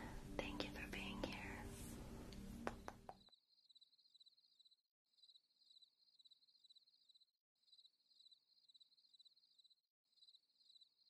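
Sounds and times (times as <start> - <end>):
faint cricket chirping: 3.2 - 11.0.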